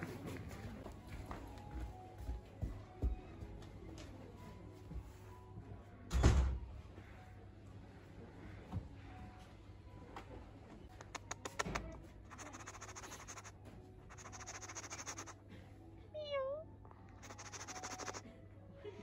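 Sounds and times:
fast scratchy noise: 12.3 - 13.5, 14.1 - 15.4, 17.2 - 18.2
fox whining: 14.1 - 15.4, 17.1 - 18.2.

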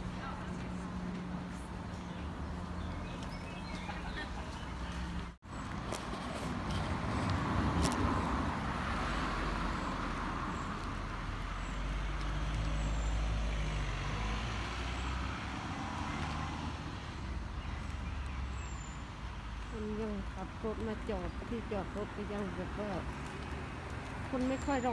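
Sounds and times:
traffic engine rumble: 0.0 - 24.9.

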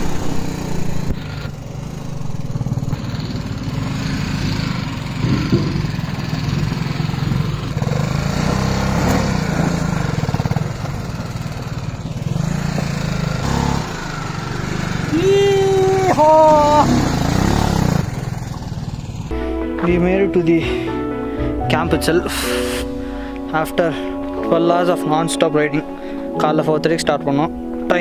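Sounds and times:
tyres on gravel: 0.0 - 19.3
motorcycle engine running: 0.0 - 20.2.

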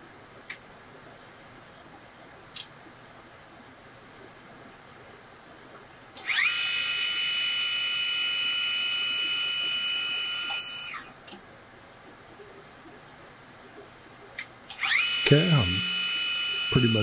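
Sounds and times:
lathe high whine: 6.3 - 11.0, 14.8 - 17.0.

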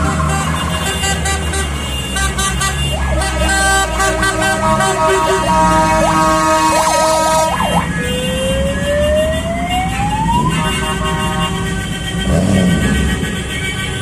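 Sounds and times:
emergency vehicle siren: 0.0 - 1.1, 2.3 - 12.1
rumble of slow traffic: 0.0 - 14.0.

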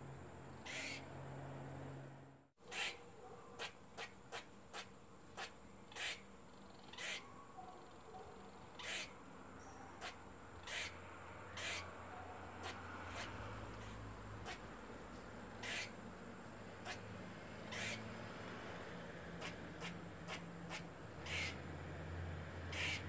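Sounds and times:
squirrel chirping: 0.6 - 1.1, 2.6 - 14.7, 15.5 - 16.0, 17.6 - 18.0, 19.4 - 21.6, 22.7 - 23.0.

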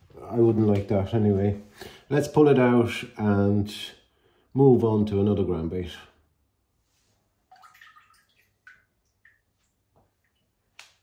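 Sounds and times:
water trickling: 7.5 - 10.7
water dripping into aquarium: 7.5 - 11.0.

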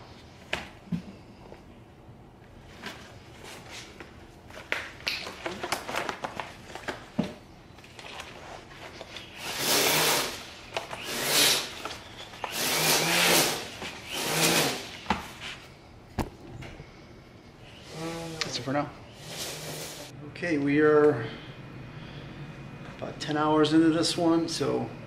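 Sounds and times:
loud rasping with low buzz: 12.5 - 15.0.

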